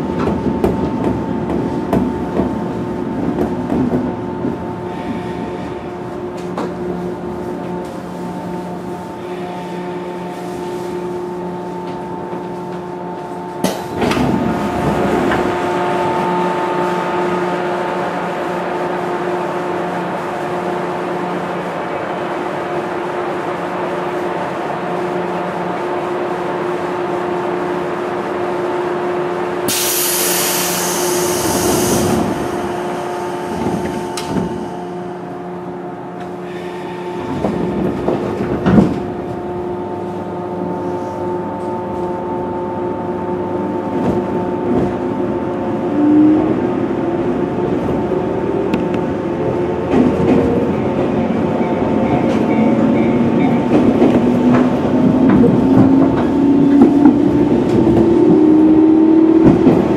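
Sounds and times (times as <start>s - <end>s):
train equipment whine: 0.0s - 22.0s, 23.6s - 59.9s
burst of hiss: 29.7s - 32.2s.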